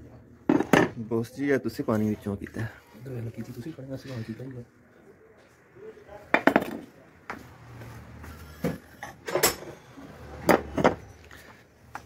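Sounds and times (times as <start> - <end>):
metal parts clanking on tiled floor: 8.6 - 9.8.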